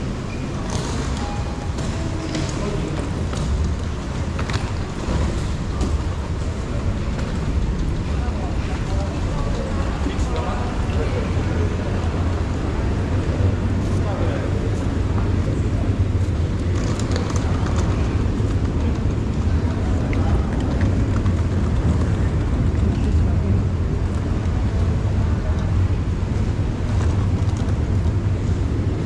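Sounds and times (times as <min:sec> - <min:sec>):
crowd chatter: 0:00.0 - 0:29.0
faint ticks and clatter: 0:15.1 - 0:29.0.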